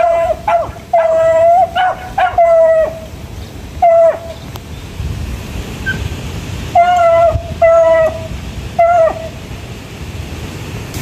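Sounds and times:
dog baying: 0:00.0 - 0:03.0, 0:06.8 - 0:08.2.

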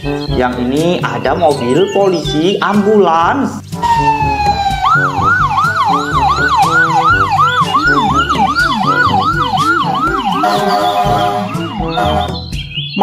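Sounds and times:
background music: 0:00.0 - 0:13.0
ambulance siren yelping: 0:03.8 - 0:13.0.

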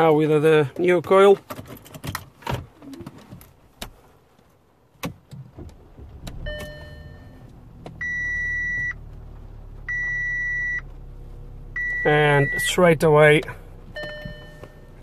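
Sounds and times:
car engine idling: 0:05.5 - 0:15.0
loud dashboard beeps: 0:06.3 - 0:09.1, 0:09.8 - 0:10.9, 0:11.7 - 0:15.0
soft dashboard chime: 0:06.4 - 0:09.1, 0:09.8 - 0:15.0.

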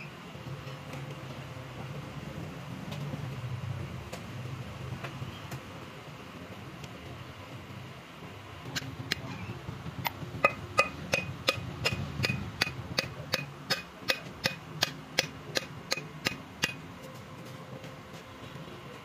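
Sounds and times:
hammer tapping on metal valves: 0:10.0 - 0:16.8.

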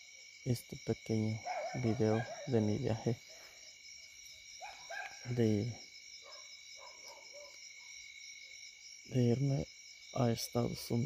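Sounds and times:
night insects chorus: 0:00.0 - 0:11.0
man speaking: 0:00.5 - 0:03.2, 0:05.2 - 0:05.8, 0:09.1 - 0:11.0.

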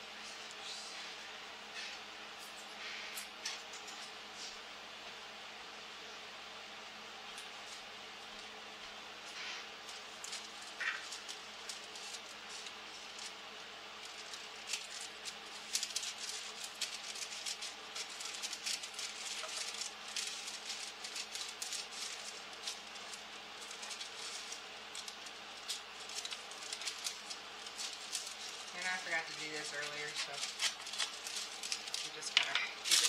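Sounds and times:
parchment paper crackling: 0:09.2 - 0:33.0.

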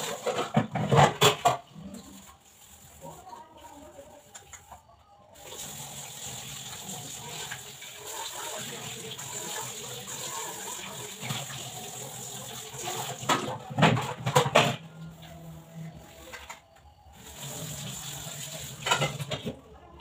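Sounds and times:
utensils clattering in sink: 0:00.0 - 0:03.5, 0:05.4 - 0:16.6, 0:17.2 - 0:19.6.

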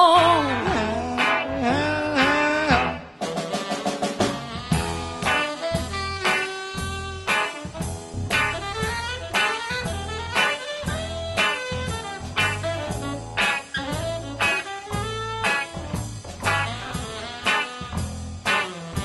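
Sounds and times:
drum kit beat: 0:00.0 - 0:19.0
saxophones playing: 0:00.0 - 0:19.0.

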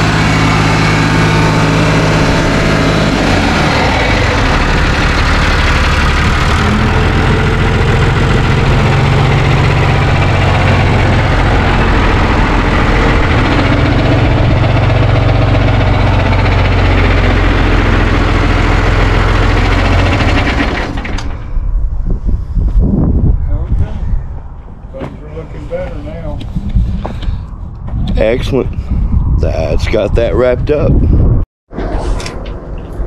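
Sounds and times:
diesel tractor engine running: 0:00.0 - 0:22.4.

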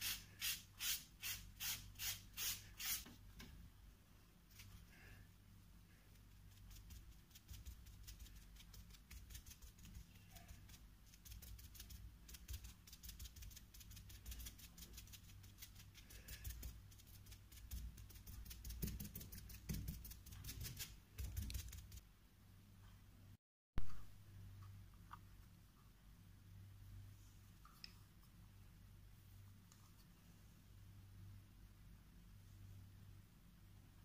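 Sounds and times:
paint dabbing on paper: 0:06.2 - 0:22.0.

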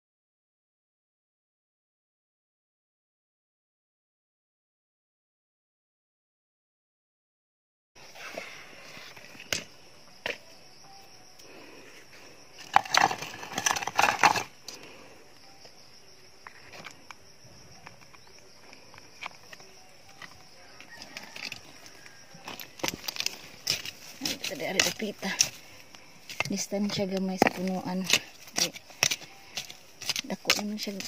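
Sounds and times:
crunching and rustling handling: 0:17.7 - 0:31.0.

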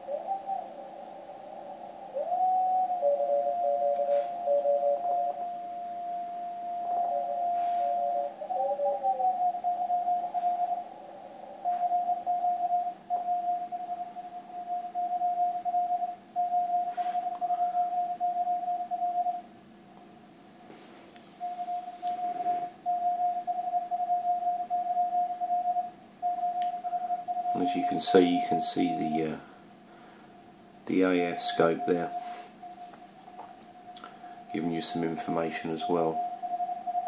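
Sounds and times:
morse code tone: 0:01.6 - 0:19.4, 0:21.4 - 0:29.4, 0:31.0 - 0:37.0
second lower keyed tone: 0:21.4 - 0:29.4.

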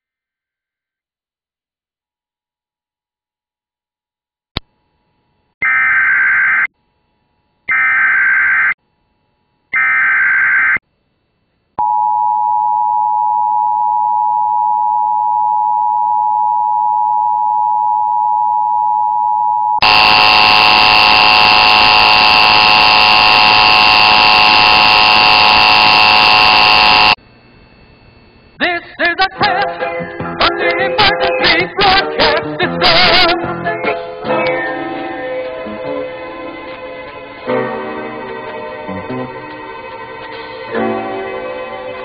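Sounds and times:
two-tone attention signal: 0:19.8 - 0:27.2
warbling data tones: 0:19.8 - 0:27.2.

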